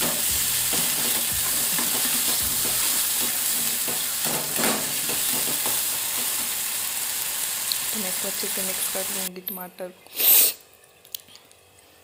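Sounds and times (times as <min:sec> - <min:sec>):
tomatoes sizzling in oil: 0:00.0 - 0:09.3.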